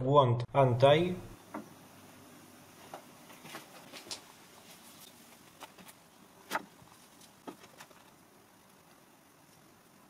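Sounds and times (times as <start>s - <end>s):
soft rustles: 2.8s - 8.2s.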